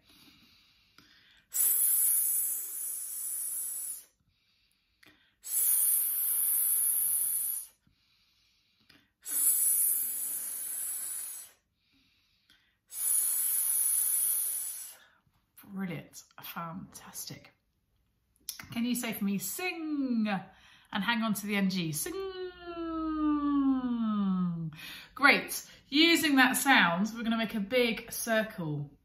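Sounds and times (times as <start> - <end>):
person hissing: 1.5 - 4.2, 5.4 - 7.8, 9.2 - 11.6, 12.9 - 15.2.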